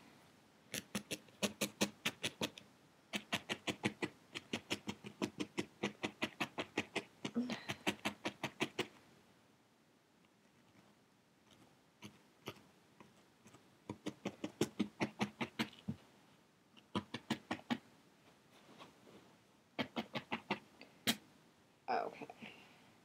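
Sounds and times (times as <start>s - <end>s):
felting needle tapping into foam: 0.7s - 8.9s, 12.0s - 16.0s, 16.8s - 17.8s.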